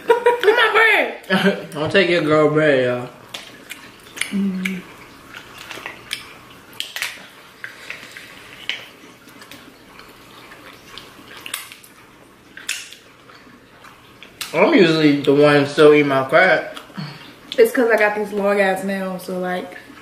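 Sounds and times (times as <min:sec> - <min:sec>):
crab shells cracking: 0:03.2 - 0:13.5, 0:14.1 - 0:14.6
wet eating smacks: 0:03.3 - 0:14.6, 0:16.6 - 0:17.6.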